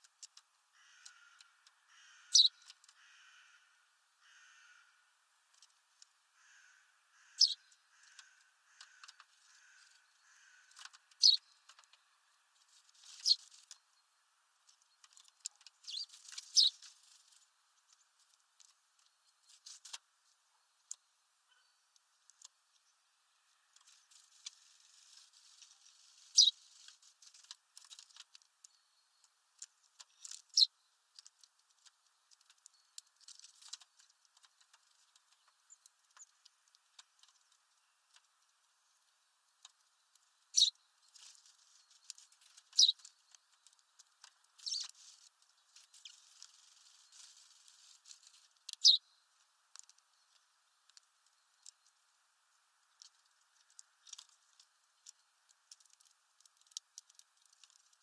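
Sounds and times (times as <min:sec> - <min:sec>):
birds pecking at seeds: 0:00.0 - 0:03.6, 0:05.4 - 0:21.2, 0:21.9 - 0:58.0.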